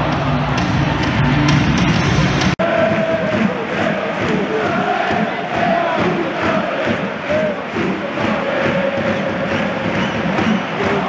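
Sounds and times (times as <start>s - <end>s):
crowd singing a chant: 2.6s - 11.0s.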